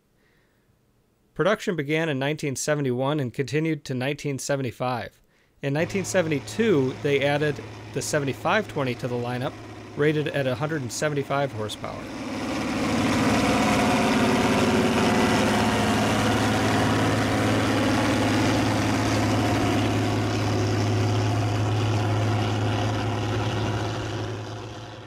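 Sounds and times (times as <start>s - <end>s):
diesel tractor engine droning: 5.8s - 25.0s.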